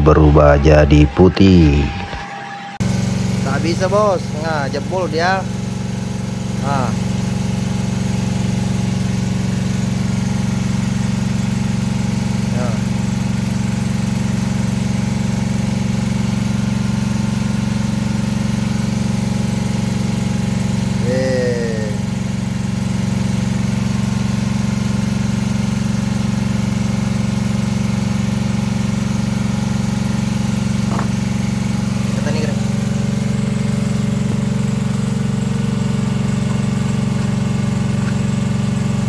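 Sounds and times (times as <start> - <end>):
brief falling tone: 0.6 - 3.2
boat engine idling: 2.8 - 39.0.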